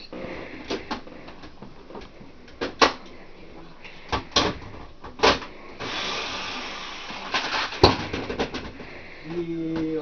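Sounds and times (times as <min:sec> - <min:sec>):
steady hiss: 0:05.3 - 0:08.1.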